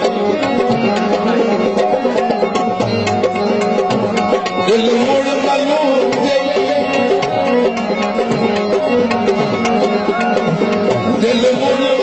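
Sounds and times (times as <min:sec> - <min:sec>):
harmonium tones: 0:00.0 - 0:12.0
tabla drumming: 0:00.0 - 0:12.0
person singing: 0:11.2 - 0:12.0.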